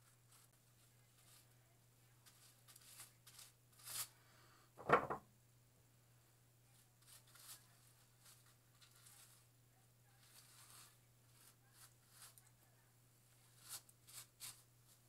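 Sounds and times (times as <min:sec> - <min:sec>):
low electrical hum: 0:00.0 - 0:15.0
short bump: 0:04.8 - 0:05.2.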